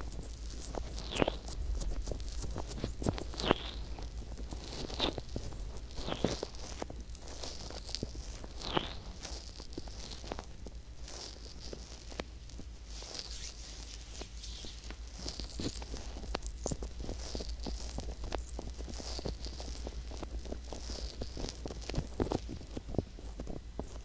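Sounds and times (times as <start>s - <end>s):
fingertips rubbing microphone: 0.0s - 24.0s
small crackles and pops: 0.0s - 24.0s.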